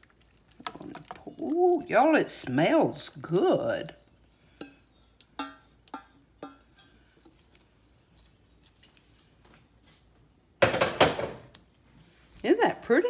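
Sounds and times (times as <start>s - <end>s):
spoon knocking on saucepan: 5.4s - 6.9s, 10.6s - 11.5s.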